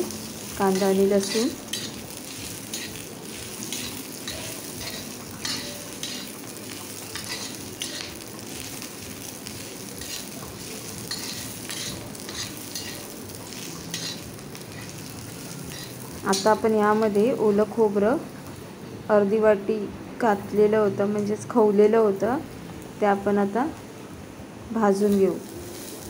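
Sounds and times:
onion sizzling in oil: 0.0 - 18.7, 24.7 - 26.0
metal spatula scraping pan: 0.7 - 3.0, 3.7 - 6.4, 7.1 - 8.2, 10.0 - 16.6.

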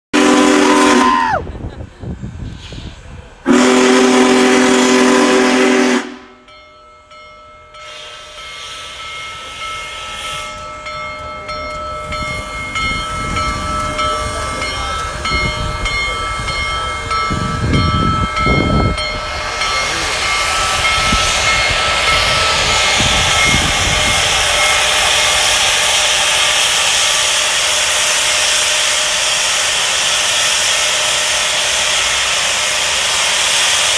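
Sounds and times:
steam locomotive chime whistle: 0.2 - 1.4, 3.5 - 33.9
hiss of escaping steam: 2.1 - 3.4, 7.8 - 10.8, 17.3 - 33.9.

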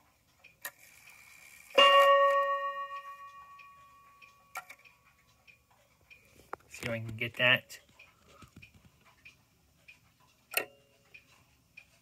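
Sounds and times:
clock click: 0.0 - 12.0
clock ticking: 0.0 - 12.0
clock chime rod ringing: 1.7 - 5.0.

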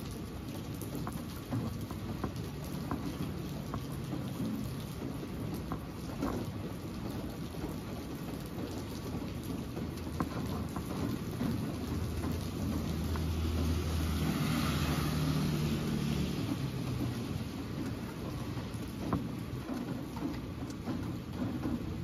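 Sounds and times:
drip ticks: 0.0 - 14.2
rain falling on wet street: 0.0 - 22.0.

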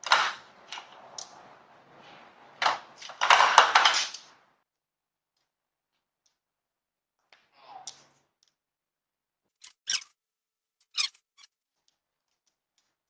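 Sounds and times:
plastic clattering on wooden floor: 2.5 - 4.3.

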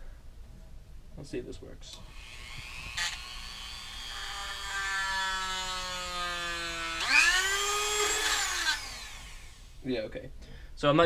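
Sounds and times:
rotary tool whining: 2.0 - 9.8.

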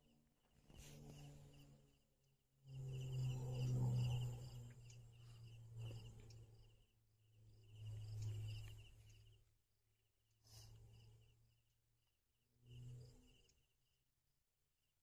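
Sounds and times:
low hum: 0.0 - 14.0
insect chirping: 2.6 - 9.6, 10.4 - 11.7, 12.6 - 14.0.

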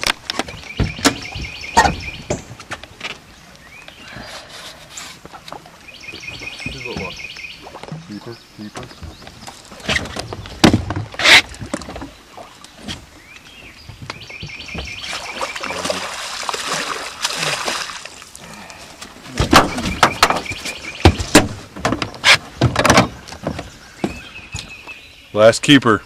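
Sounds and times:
knocks and thumps in boat: 0.0 - 3.2, 5.2 - 17.9, 19.2 - 24.8
fish thrashing and splashing: 14.8 - 22.2.

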